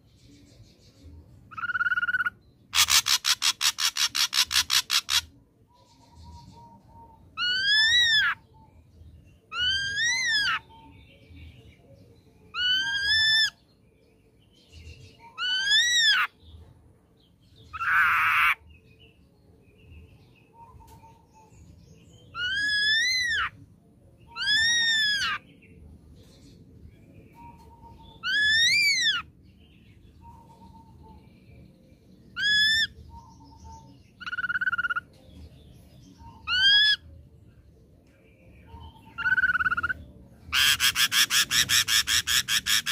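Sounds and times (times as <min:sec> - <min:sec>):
bird harsh rasping call: 0:01.5 - 0:05.3, 0:39.2 - 0:42.9.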